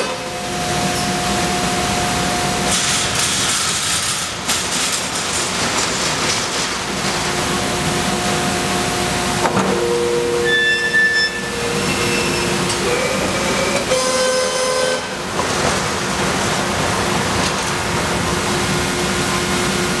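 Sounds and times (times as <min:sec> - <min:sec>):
steady machine hum: 0:00.0 - 0:20.0
cutting pallet rolling on rails: 0:02.7 - 0:07.4.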